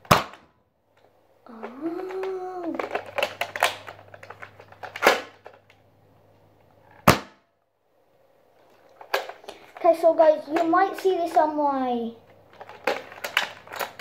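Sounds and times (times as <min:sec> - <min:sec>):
sharp plastic snap: 0:00.0 - 0:00.6, 0:01.6 - 0:05.8, 0:07.0 - 0:07.5
plastic clack: 0:00.0 - 0:05.8, 0:08.6 - 0:09.8, 0:10.5 - 0:11.4, 0:12.3 - 0:14.0
toy blaster plastic clicks and rattles: 0:01.0 - 0:05.8, 0:08.9 - 0:11.6, 0:12.5 - 0:14.0.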